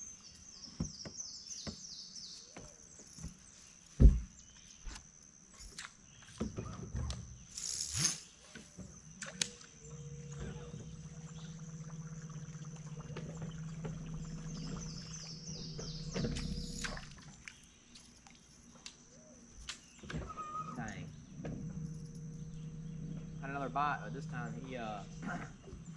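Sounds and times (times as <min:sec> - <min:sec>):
high insect drone: 0:01.7 - 0:25.9
lure churning water surface: 0:10.5 - 0:17.6.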